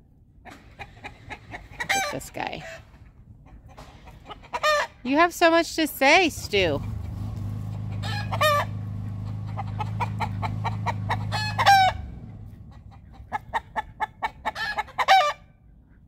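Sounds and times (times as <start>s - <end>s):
chickens clucking: 0.4s - 5.6s, 6.2s - 16.0s
chickens calling: 0.4s - 16.0s
steady low hum: 6.0s - 14.5s.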